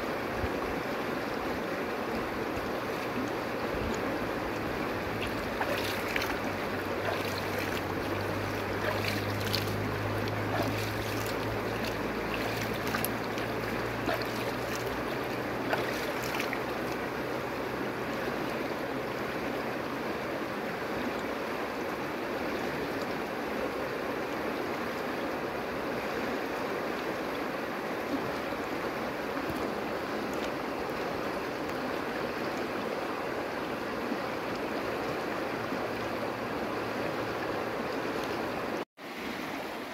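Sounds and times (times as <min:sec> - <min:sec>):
river rushing over stones: 0:00.0 - 0:39.9
water splashes and plinks: 0:00.4 - 0:19.6.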